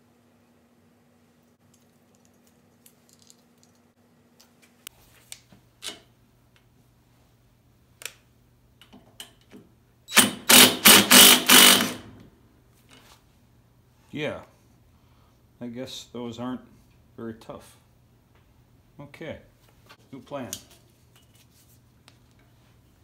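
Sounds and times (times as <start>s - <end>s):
cordless drill driving screw: 10.1s - 12.1s.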